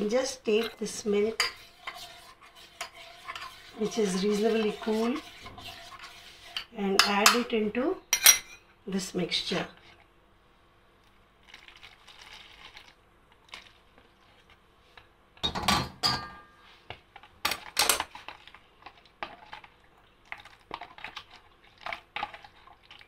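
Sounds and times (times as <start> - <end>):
spoon stirring in a bowl: 0.0 - 8.6, 16.9 - 23.0
milk pouring into a bowl: 11.4 - 13.9, 18.3 - 23.0.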